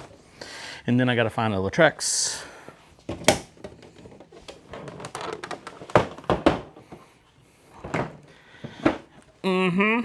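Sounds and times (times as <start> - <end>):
objects knocking and thudding: 3.0 - 7.2, 7.8 - 9.3.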